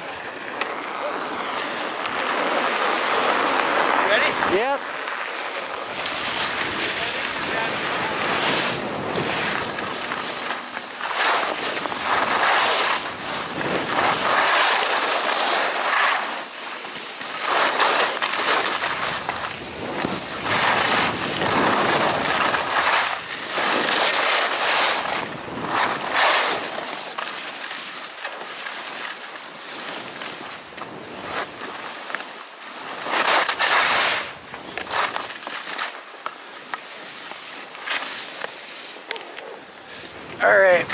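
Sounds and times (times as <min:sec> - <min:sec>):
skis scraping on snow: 0:00.0 - 0:40.9
wind on microphone: 0:06.2 - 0:10.5, 0:18.9 - 0:24.0.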